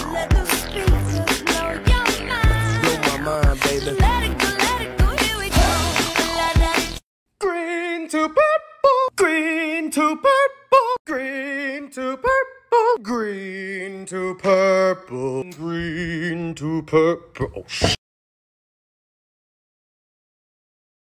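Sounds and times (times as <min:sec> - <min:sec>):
background music with a beat: 0:00.0 - 0:07.0
person singing unaccompanied: 0:00.0 - 0:17.6.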